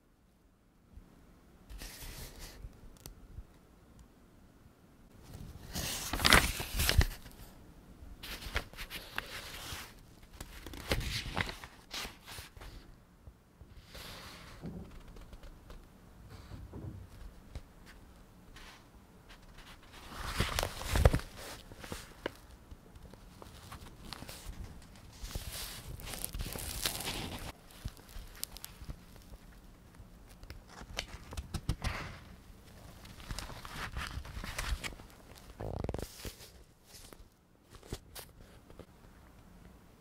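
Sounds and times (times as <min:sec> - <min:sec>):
book pages turning: 0:01.7 - 0:02.6, 0:05.3 - 0:07.5, 0:08.2 - 0:12.8, 0:14.8 - 0:15.8, 0:18.6 - 0:38.9.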